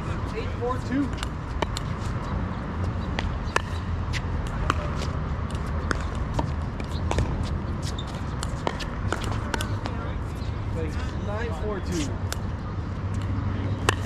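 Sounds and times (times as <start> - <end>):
steady low rumble: 0.0 - 14.0
ball bouncing on court: 3.1 - 10.1, 13.2 - 14.0.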